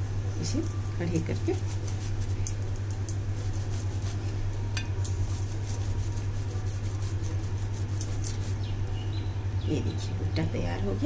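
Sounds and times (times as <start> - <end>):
steady low hum: 0.0 - 11.0
lemon scratching on corn cob: 1.3 - 2.4, 3.4 - 4.2, 5.1 - 8.6.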